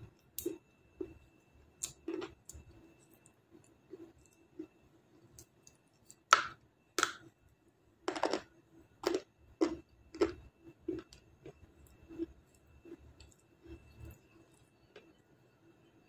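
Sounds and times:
crunchy bites and chewing: 8.1 - 12.4.

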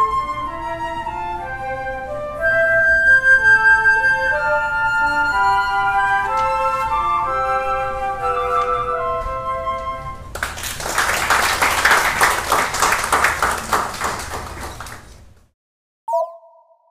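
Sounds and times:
flute quartet playing: 0.0 - 10.3
audience applause: 10.3 - 15.3.

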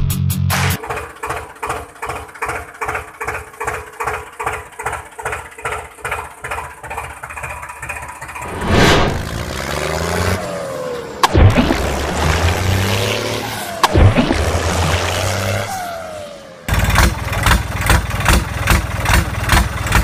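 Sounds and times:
tractor engine chugging: 0.8 - 8.4, 16.7 - 20.0.

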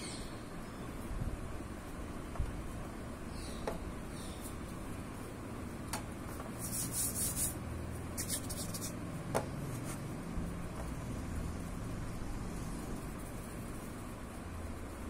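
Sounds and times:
steady low hum: 0.0 - 15.0
clay rubbing on metal: 6.2 - 9.0.

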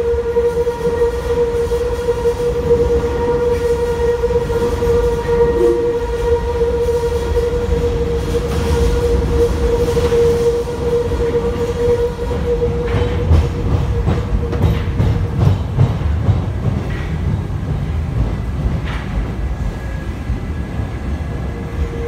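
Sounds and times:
metro train low rumble: 0.0 - 22.0
train whine: 0.0 - 22.0
wheels clacking over rail joints: 12.0 - 19.8.

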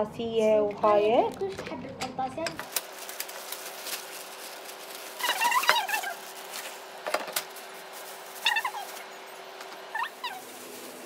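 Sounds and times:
plastic bags rustling: 2.6 - 11.0.

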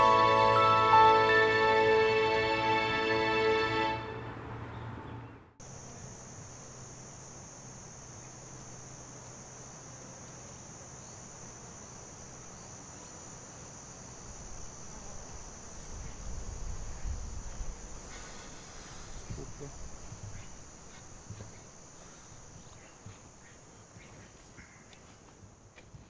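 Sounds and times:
music: 0.0 - 4.3
insects chirring: 5.6 - 26.0.

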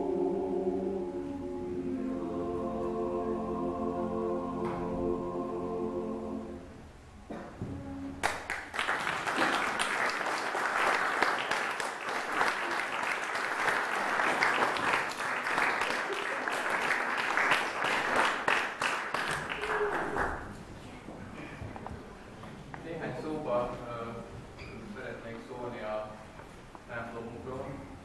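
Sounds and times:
audience applauding: 8.2 - 20.6.

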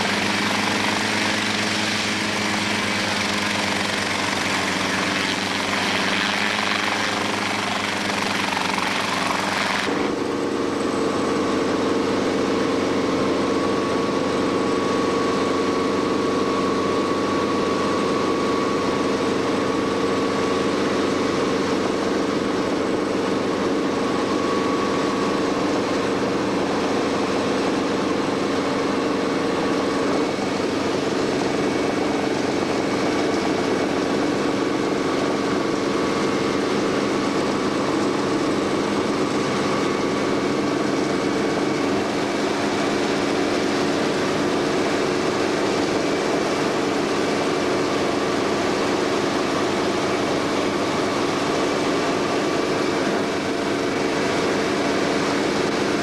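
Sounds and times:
helicopter engine and rotor drone: 0.0 - 56.0.

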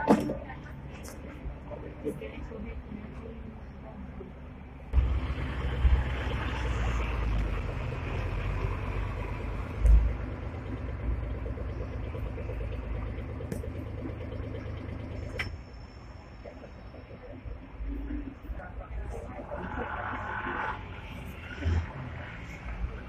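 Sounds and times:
tram wheels rumbling on rails: 0.0 - 23.0
wheels thumping over track joints: 12.2 - 15.6.

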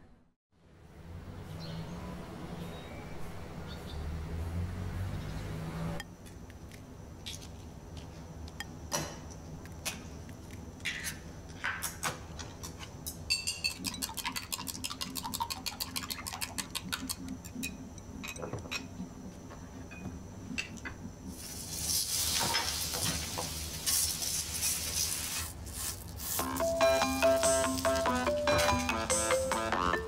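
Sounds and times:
food sizzling in a pan: 21.3 - 26.6.

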